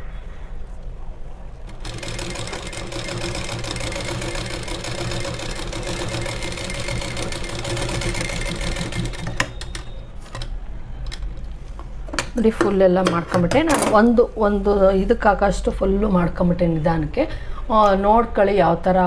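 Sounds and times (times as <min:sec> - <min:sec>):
sewing machine running: 0:01.7 - 0:10.5.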